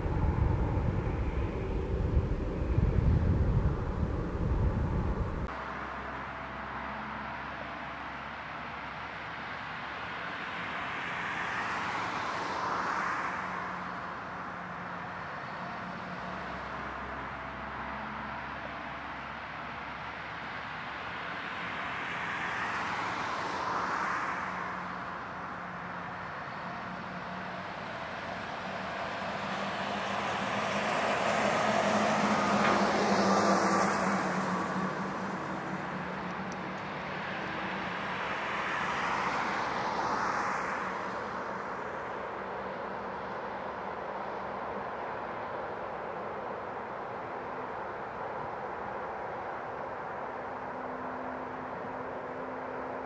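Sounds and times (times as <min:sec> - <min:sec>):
jet engines rumbling: 0:00.0 - 0:05.5, 0:27.5 - 0:40.1
high engine whine: 0:00.0 - 0:12.5, 0:13.4 - 0:53.0.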